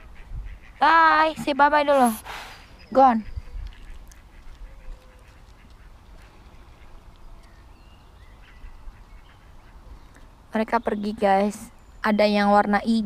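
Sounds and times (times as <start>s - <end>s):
wind rumble on microphone: 0.0s - 1.6s, 3.1s - 5.2s
ducks quacking faintly: 0.0s - 10.4s.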